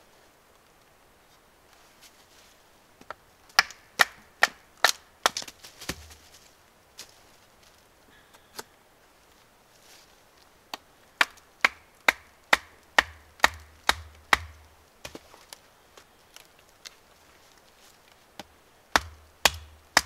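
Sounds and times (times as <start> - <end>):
knife chopping into wood: 12.6 - 15.2, 19.0 - 20.0.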